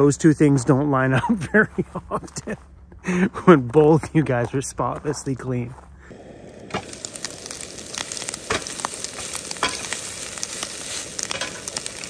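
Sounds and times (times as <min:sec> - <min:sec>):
food sizzling and crackling in pan: 0:06.2 - 0:12.0
spatula turning greens: 0:06.7 - 0:12.0.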